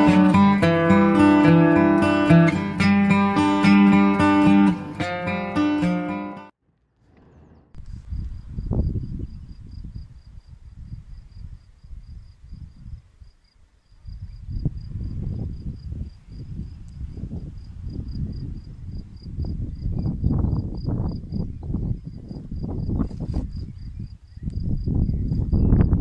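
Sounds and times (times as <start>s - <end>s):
wind buffeting microphone: 7.2s - 26.0s
insect chirping: 7.8s - 26.0s.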